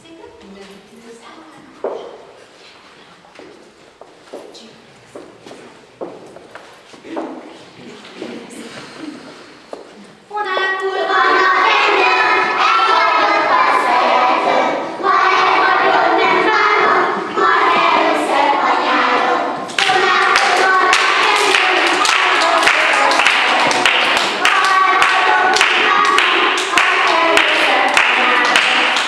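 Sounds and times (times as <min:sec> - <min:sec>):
children singing together: 0:10.5 - 0:29.0
hand claps: 0:19.7 - 0:29.0.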